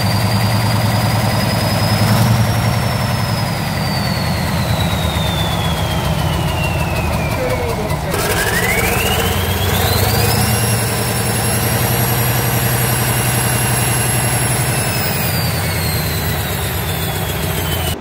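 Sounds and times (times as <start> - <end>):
diesel engine running: 0.0 - 18.0
turbocharger whine: 0.0 - 18.0.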